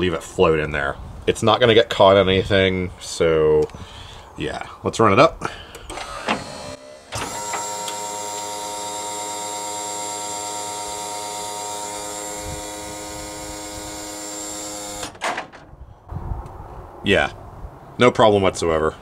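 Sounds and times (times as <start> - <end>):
lift clunk: 5.8 - 8.0, 15.0 - 15.8
electric motor whine: 5.9 - 15.2.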